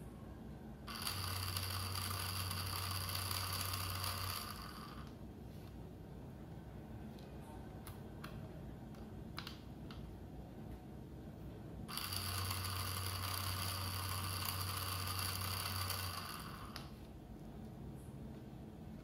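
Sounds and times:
small motor gears whirring: 0.9 - 5.2, 11.9 - 16.9
small parts clicking: 0.9 - 5.2, 11.9 - 17.0.

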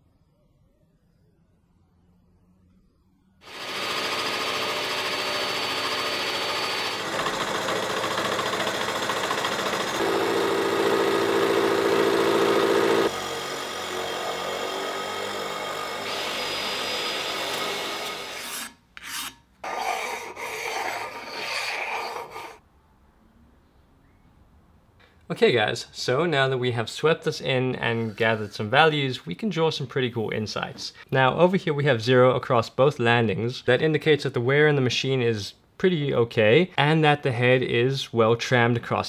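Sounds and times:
milling machine motor whine: 3.4 - 18.4
cutter scratching iron: 3.4 - 22.6
stone rubbed across iron: 18.4 - 22.6.

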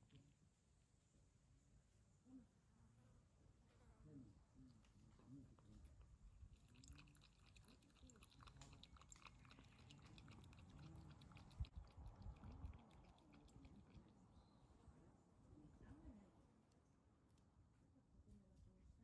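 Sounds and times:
cat lapping milk: 5.9 - 14.2.

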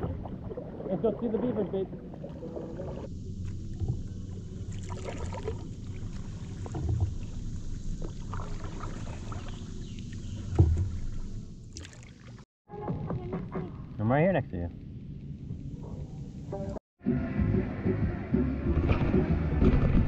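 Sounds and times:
paddle splashing in water: 0.0 - 12.4
steady low rumble: 2.9 - 11.7
water dripping from paddle: 3.3 - 12.4.

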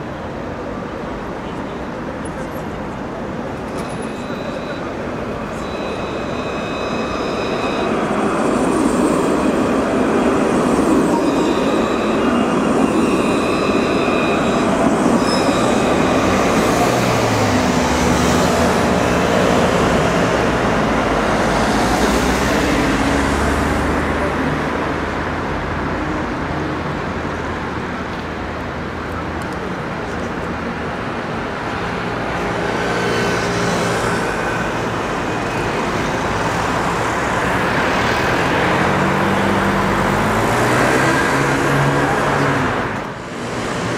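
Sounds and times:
city road traffic: 0.0 - 43.9
trams running on tracks: 0.0 - 43.9
high steady whining tones: 4.0 - 18.0.

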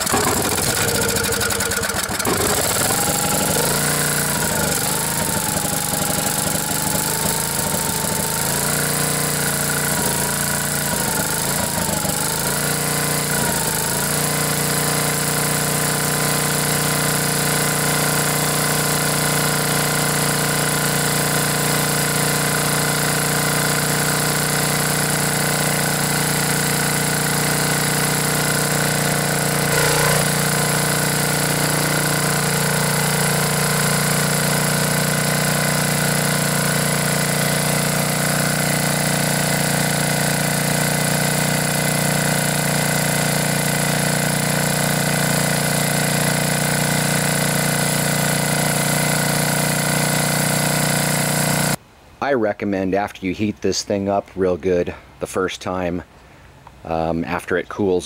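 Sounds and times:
generator engine running: 0.0 - 51.8.

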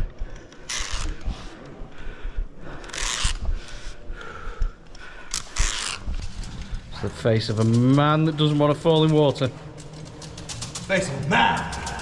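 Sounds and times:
person breathing hard: 0.0 - 6.9
gear knocking and rustling: 5.3 - 12.0.

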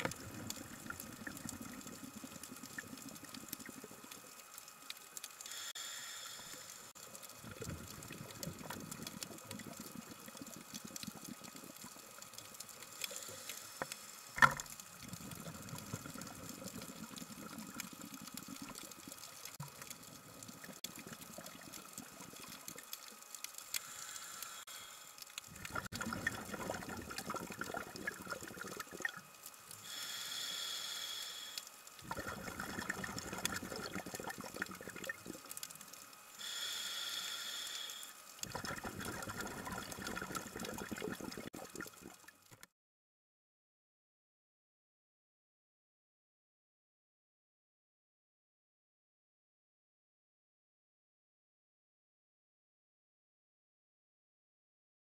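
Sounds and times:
steady hiss: 0.0 - 7.5, 12.1 - 15.6, 21.9 - 25.4, 29.4 - 32.0, 35.2 - 38.4
underwater bubbling and gurgling: 0.0 - 42.6.

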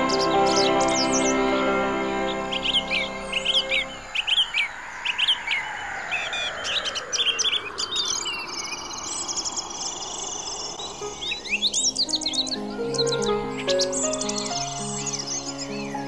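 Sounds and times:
sustained music notes: 0.0 - 4.3, 11.0 - 16.0
small songbirds chirping: 0.0 - 16.0.

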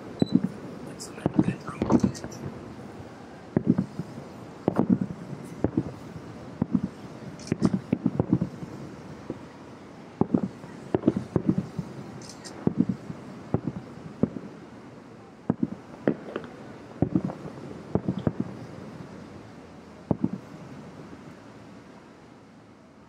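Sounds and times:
distant fireworks booming: 0.0 - 21.5.

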